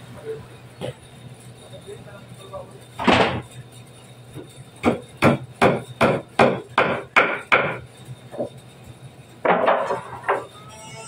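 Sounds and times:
hand tool knocking on wood: 4.8s - 7.8s.

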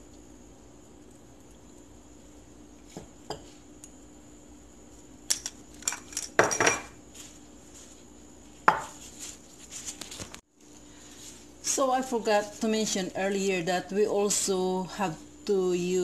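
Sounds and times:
ceramic dishes clinking: 5.8s - 7.0s.

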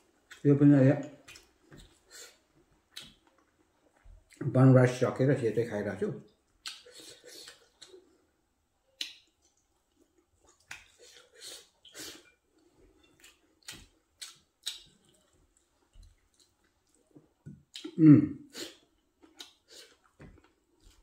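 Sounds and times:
wet chewing smacks and clicks: 1.1s - 2.0s, 2.9s - 4.4s, 6.5s - 8.0s, 8.9s - 12.1s, 13.1s - 18.0s, 19.2s - 21.0s.

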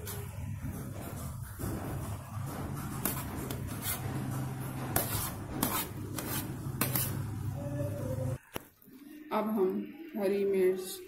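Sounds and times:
metal spoon scraping a pot: 0.0s - 7.6s.

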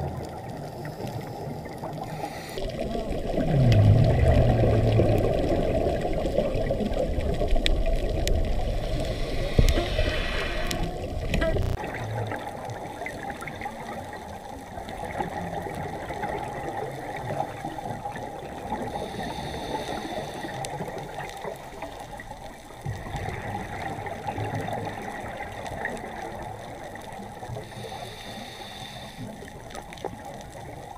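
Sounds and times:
muffled underwater crackling: 0.0s - 30.9s.

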